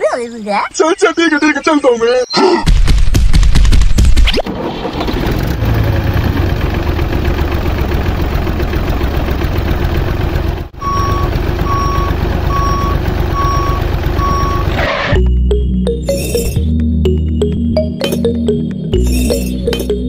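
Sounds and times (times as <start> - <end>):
heavy vehicle engine running: 4.4 - 16.0
reversing alarm beeping: 10.8 - 16.7.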